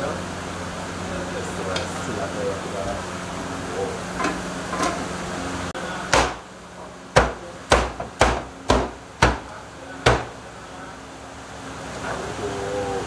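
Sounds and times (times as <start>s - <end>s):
steady background hum: 0.0s - 13.0s
cleaver chopping on block: 6.1s - 6.4s, 7.2s - 9.5s.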